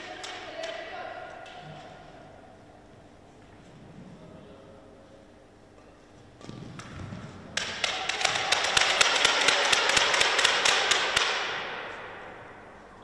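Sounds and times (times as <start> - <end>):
racket striking shuttlecock: 6.4 - 12.0.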